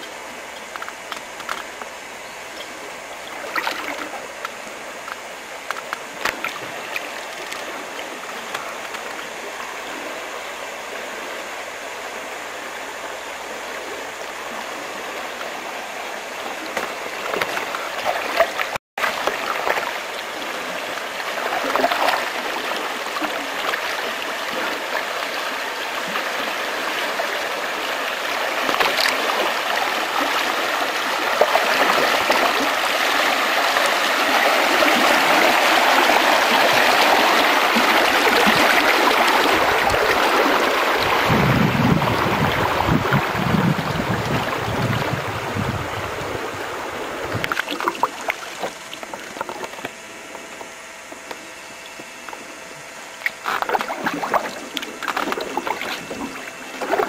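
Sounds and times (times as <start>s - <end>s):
paddle splashes: 0.6s - 10.9s, 14.5s - 57.0s
river rapids rushing: 20.4s - 47.3s.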